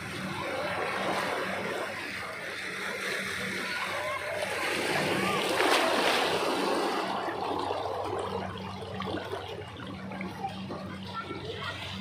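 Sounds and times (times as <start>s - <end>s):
rush of water from wave: 0.0s - 9.4s
water sloshing and trickling: 0.0s - 12.0s.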